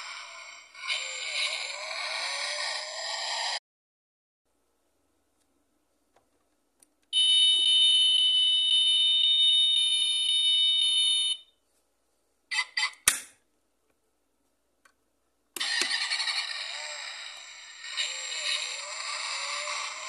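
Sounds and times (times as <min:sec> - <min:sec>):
toy electronic beep tone: 0:07.2 - 0:11.5
sharp click: 0:13.0 - 0:13.4.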